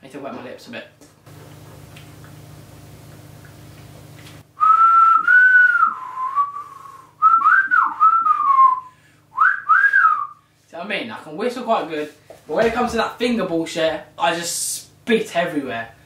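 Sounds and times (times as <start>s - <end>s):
low steady hum: 0.0s - 16.0s
man whistling a tune: 4.6s - 10.4s.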